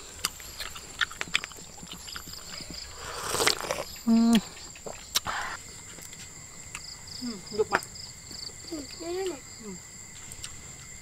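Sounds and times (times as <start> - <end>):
slurping: 0.0 - 6.2
mouth clicks: 0.0 - 6.9
insects chirring: 0.0 - 11.0.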